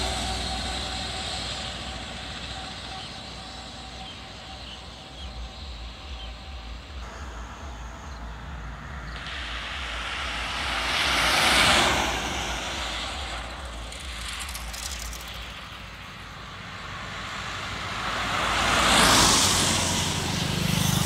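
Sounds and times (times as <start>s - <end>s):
truck driving away: 0.0s - 5.1s
car approaching: 0.0s - 21.0s.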